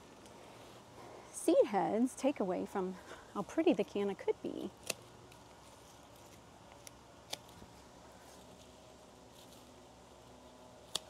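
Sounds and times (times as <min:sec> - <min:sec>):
pruning shears snipping: 0:04.6 - 0:07.8, 0:10.8 - 0:11.0.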